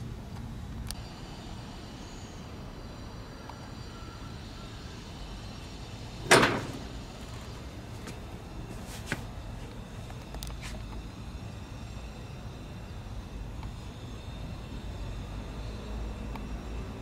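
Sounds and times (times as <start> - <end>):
metal box door clunk: 6.2 - 7.0.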